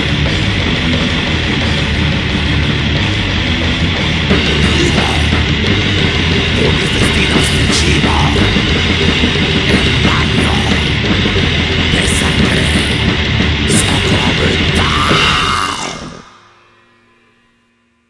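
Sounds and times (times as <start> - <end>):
distorted metal band playing: 0.0 - 17.4.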